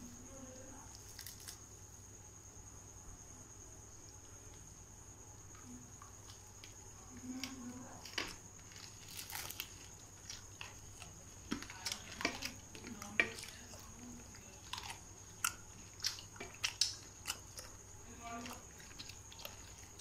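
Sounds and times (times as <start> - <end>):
food handling crinkles: 0.9 - 1.6, 6.2 - 20.0.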